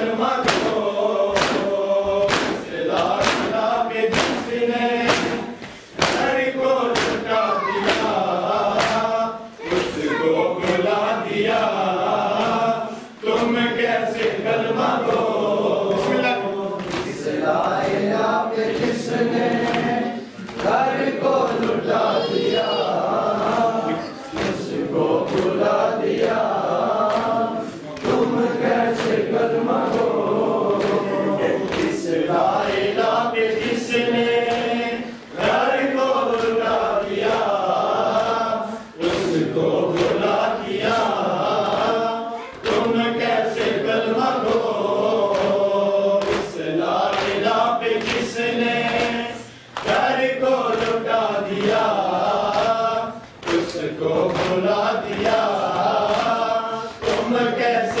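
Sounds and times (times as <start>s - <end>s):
men chanting together: 0.0s - 58.0s
hand slaps on chest: 0.4s - 9.1s.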